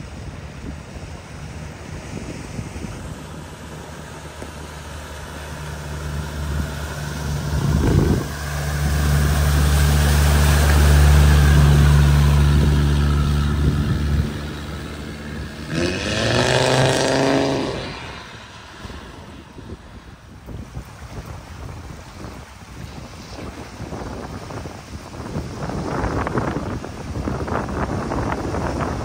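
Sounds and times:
vehicle engine: 0.0 - 23.4
water rushing: 0.0 - 29.0
engine revving: 4.3 - 20.2.

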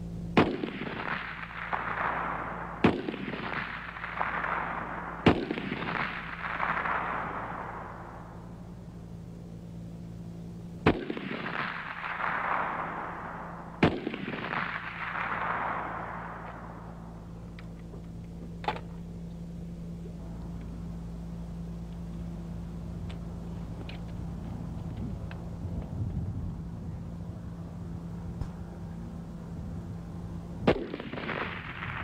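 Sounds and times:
steady low hum: 0.0 - 32.0
rifle shots with echo: 0.3 - 19.9, 30.6 - 32.0.

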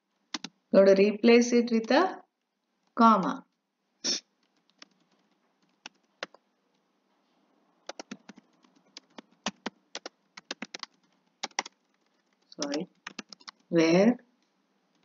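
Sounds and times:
typing on a computer keyboard: 0.2 - 0.6, 4.4 - 6.4, 7.8 - 13.7.

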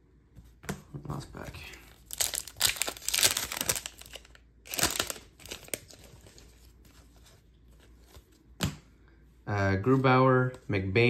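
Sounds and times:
cards rustling: 1.4 - 8.6
foil wrapper tearing and crinkling: 2.0 - 6.4.

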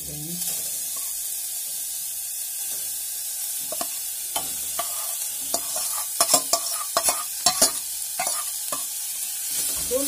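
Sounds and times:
carrots sizzling in hot ghee: 0.0 - 10.0
steel spoon scraping metal pot: 3.7 - 8.9.

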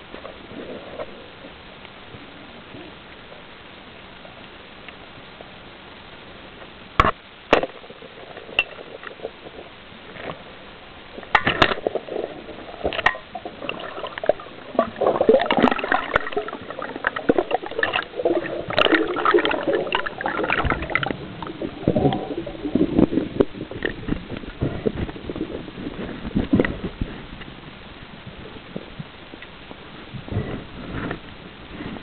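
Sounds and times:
water rushing and bubbling: 7.0 - 32.0.

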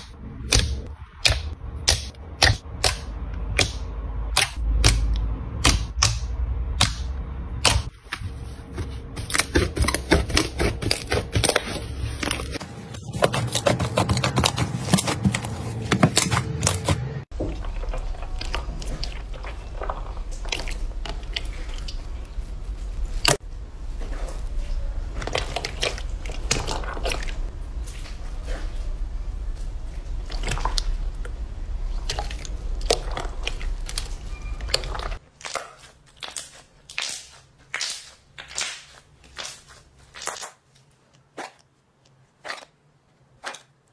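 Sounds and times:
slime squishing: 0.0 - 43.9
slime crackling and popping: 31.9 - 41.7.

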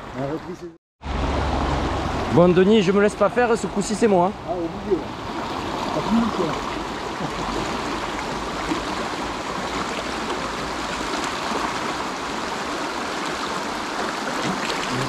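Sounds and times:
stream rushing over rocks: 4.8 - 15.0.

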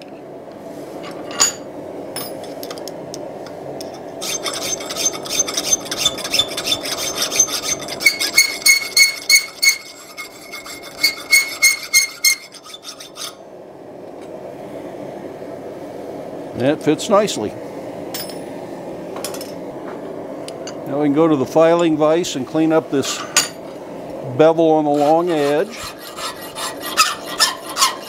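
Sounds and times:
file rasping in metal: 4.2 - 13.4, 24.9 - 28.0.

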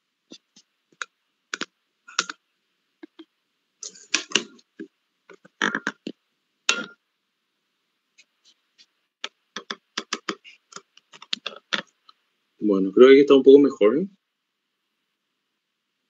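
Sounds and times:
keyboard typing: 1.0 - 2.4, 9.6 - 11.9.

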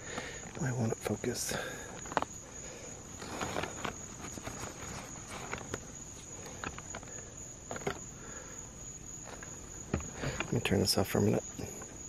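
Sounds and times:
light clicks and rustles: 0.0 - 8.1
night insects trilling: 0.0 - 12.0.

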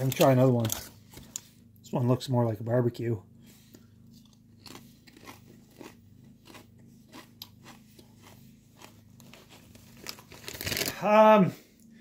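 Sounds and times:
steady low hum: 0.0 - 12.0
person chewing potato chips: 3.7 - 11.0.

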